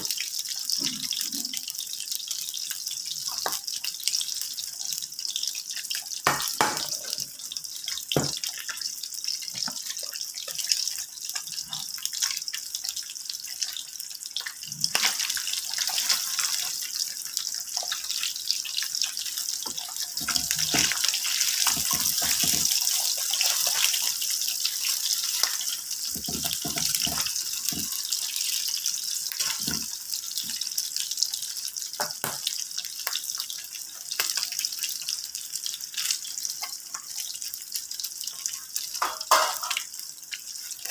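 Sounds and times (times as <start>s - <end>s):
meat sizzling in a frying pan: 0.0s - 40.9s.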